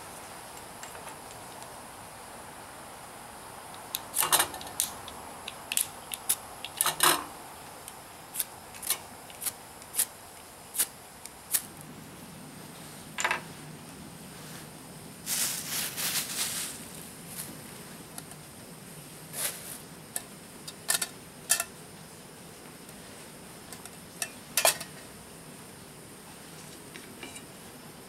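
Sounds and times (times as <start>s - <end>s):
steady background hiss: 0.0s - 28.0s
crackly rustling: 8.4s - 18.6s.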